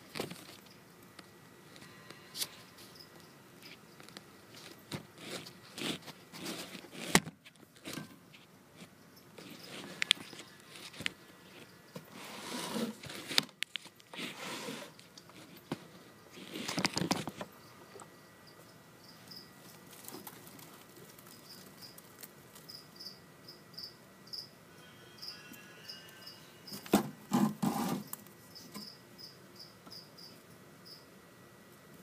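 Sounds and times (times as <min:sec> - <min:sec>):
cricket chirping: 0:01.9 - 0:04.2, 0:17.5 - 0:27.0, 0:28.0 - 0:31.1.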